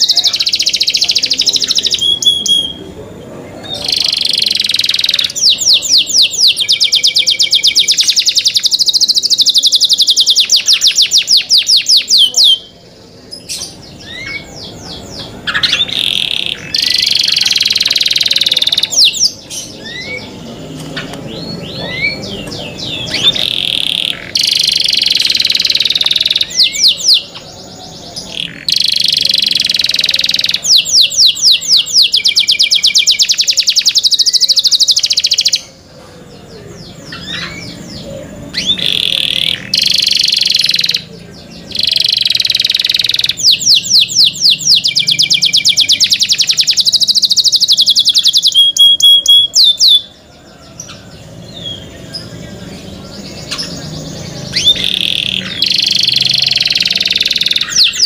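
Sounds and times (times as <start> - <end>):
canary singing trills: 0.0 - 58.0.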